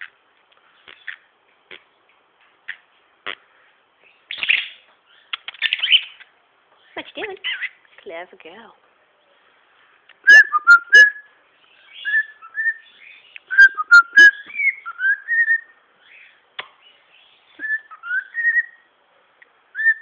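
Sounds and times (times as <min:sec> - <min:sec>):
cockatiel chirped whistles: 0:10.3 - 0:11.2, 0:11.9 - 0:12.9, 0:13.5 - 0:15.7, 0:17.6 - 0:18.8
cockatiel warbling whistles: 0:10.3 - 0:11.2, 0:13.5 - 0:15.7.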